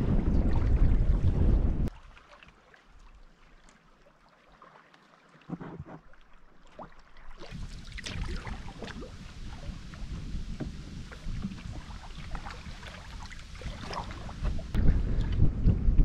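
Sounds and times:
wind buffeting microphone: 0.0 - 1.9, 7.6 - 16.0
waves slapping canoe hull: 0.0 - 15.4.

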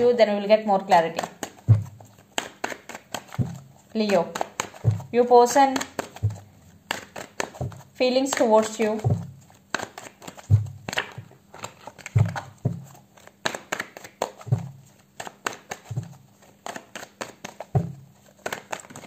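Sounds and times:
cards being shuffled: 0.9 - 19.0
soft low thumps: 1.6 - 2.1, 3.4 - 3.8, 4.8 - 5.4, 6.2 - 6.7, 7.6 - 8.0, 8.8 - 9.5, 10.4 - 11.3, 12.1 - 12.9, 14.5 - 14.9.

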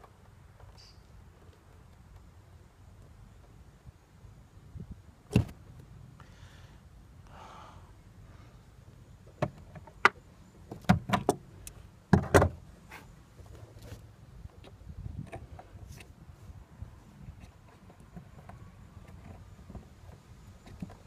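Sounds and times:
scraping rustles: 12.8 - 21.0.

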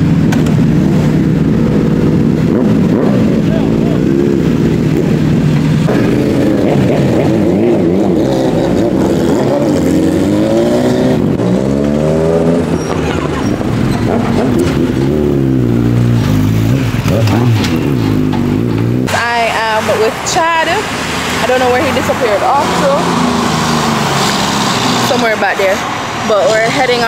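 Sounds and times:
motorcycle engines revving: 0.0 - 27.0.

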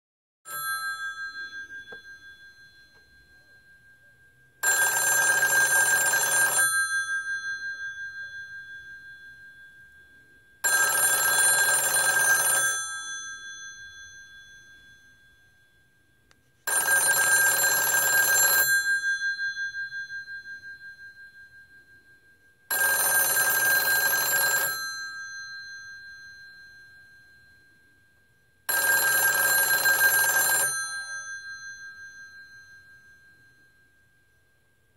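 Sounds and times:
telephone bells ringing: 0.5 - 3.6, 4.6 - 9.5, 10.6 - 15.6, 16.6 - 21.0, 22.7 - 27.7, 28.7 - 33.6.

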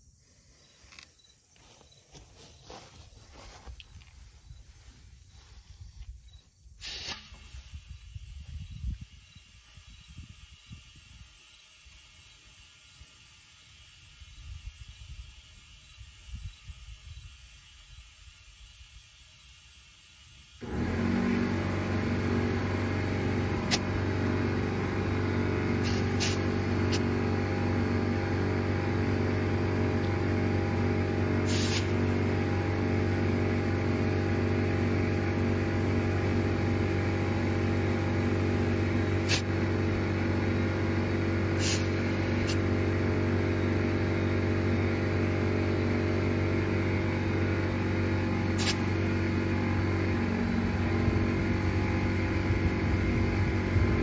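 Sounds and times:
air compressor running: 0.0 - 54.0
short clicks and hisses: 0.8 - 1.4, 6.0 - 9.5, 25.8 - 27.0, 31.5 - 32.0, 39.2 - 39.5, 41.6 - 42.6, 48.6 - 49.0.

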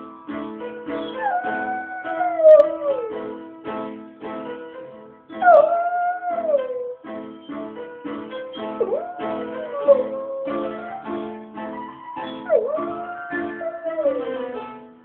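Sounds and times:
piano chords: 0.0 - 15.0
dog howling: 1.0 - 3.1, 5.4 - 7.0, 8.8 - 11.1, 12.2 - 14.6.

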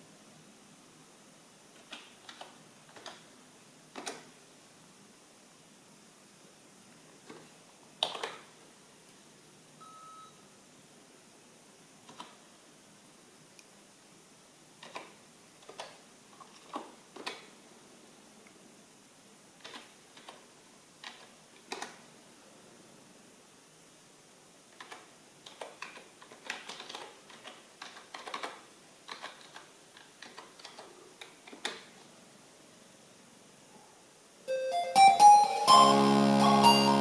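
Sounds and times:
keyboard keystrokes: 1.8 - 3.2, 8.0 - 8.4, 14.8 - 16.0, 19.6 - 20.4, 24.8 - 31.9
short electronic beep: 9.8 - 10.4.

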